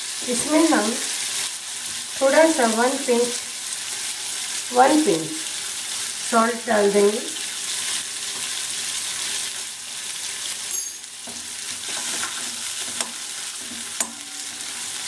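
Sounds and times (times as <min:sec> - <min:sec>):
seeds sizzling in hot oil: 0:00.0 - 0:15.0
spoon stirring in a pan: 0:11.2 - 0:14.8.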